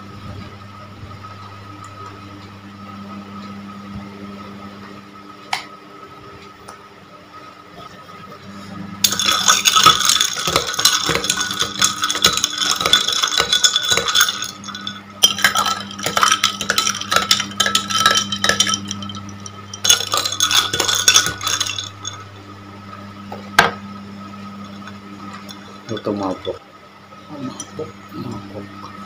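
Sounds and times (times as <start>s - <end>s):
spoon clinking against glass: 9.0s - 22.2s.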